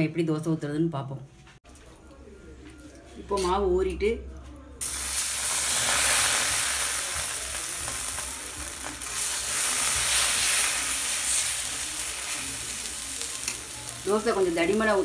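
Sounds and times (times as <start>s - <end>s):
batter sizzling on hot pan: 4.8s - 15.0s.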